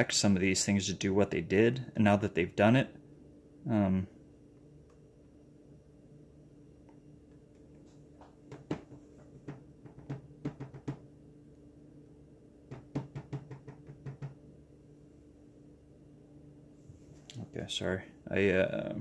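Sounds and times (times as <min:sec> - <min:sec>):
steady low hum: 0:00.0 - 0:19.0
light knocks and taps: 0:07.3 - 0:11.0, 0:12.7 - 0:14.4.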